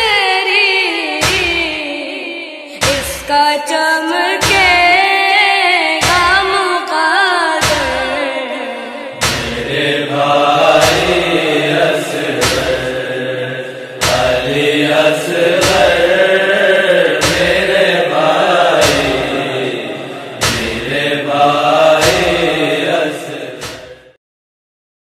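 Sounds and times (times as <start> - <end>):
boy chanting a lament: 0.0 - 23.4
sharp chest-beating slaps: 1.2 - 1.7, 4.4 - 4.9, 6.0 - 6.5, 7.6 - 8.1, 9.2 - 13.3, 14.0 - 24.0.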